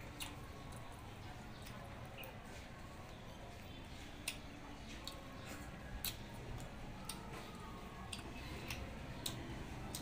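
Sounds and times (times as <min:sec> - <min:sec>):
chewing crispy food: 0:00.0 - 0:10.0.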